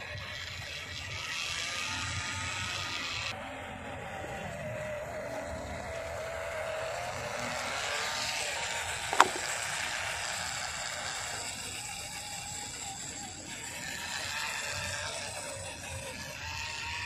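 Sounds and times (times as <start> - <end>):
small electric motor whining: 0.0 - 17.0
sharp click: 9.1 - 9.6.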